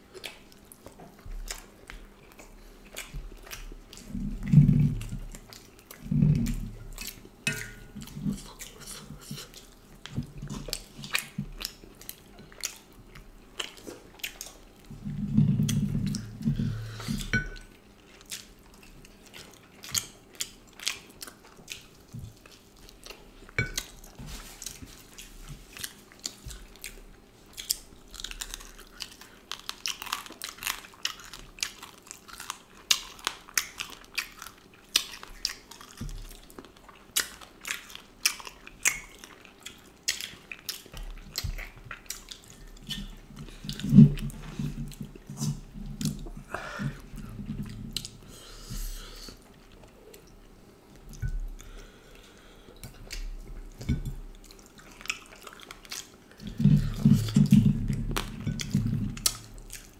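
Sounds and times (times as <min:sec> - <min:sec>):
close chewing and biting: 0:00.0 - 0:59.9.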